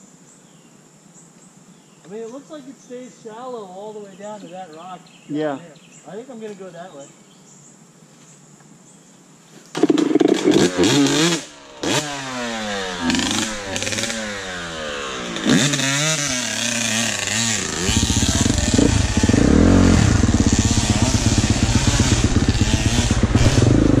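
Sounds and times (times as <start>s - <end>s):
dirt bike engines revving: 9.8s - 24.0s.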